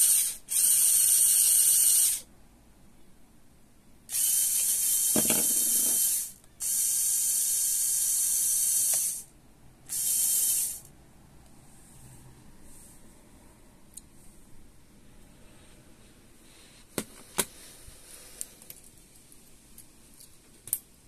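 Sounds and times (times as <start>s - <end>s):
small electric motor whirring: 0.0s - 2.3s, 4.1s - 9.2s, 9.9s - 10.9s.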